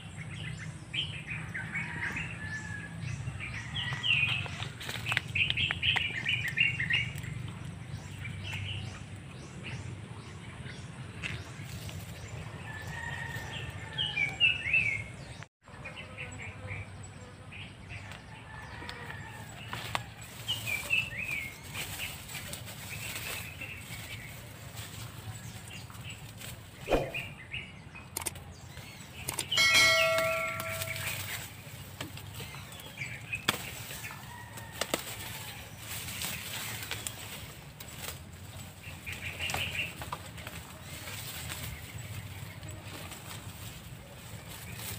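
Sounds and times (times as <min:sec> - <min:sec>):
birds chirping: 0:00.0 - 0:44.9
dry undergrowth rustling and snapping: 0:03.7 - 0:08.8, 0:11.2 - 0:14.4, 0:18.1 - 0:27.2, 0:28.2 - 0:44.9.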